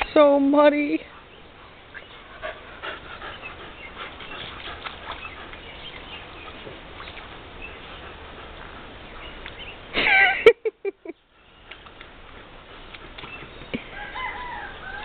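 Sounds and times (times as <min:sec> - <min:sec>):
puppy panting and snuffling: 0:01.0 - 0:09.9, 0:11.5 - 0:13.7.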